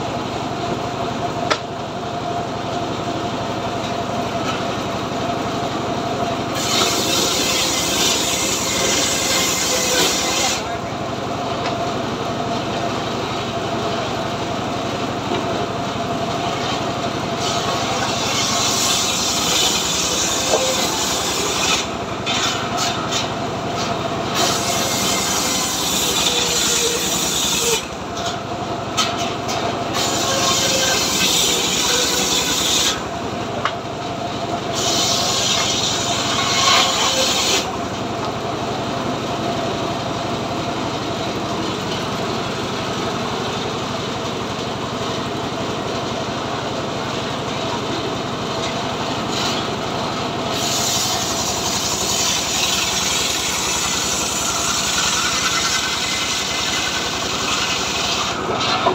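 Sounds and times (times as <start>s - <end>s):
engine-driven circular saw running: 0.0s - 58.9s
saw blade cutting log: 6.5s - 10.9s, 16.3s - 33.8s, 34.6s - 38.3s, 48.6s - 49.8s, 50.4s - 58.9s.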